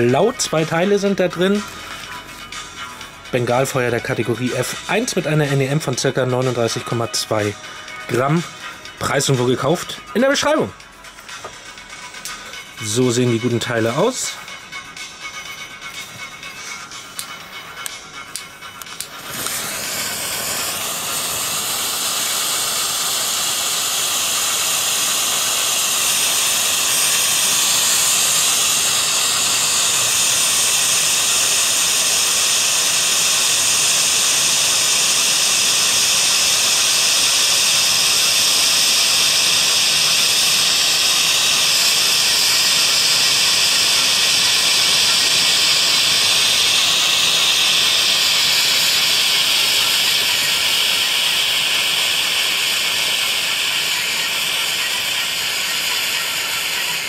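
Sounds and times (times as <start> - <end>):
flare hissing: 18.8 - 57.0.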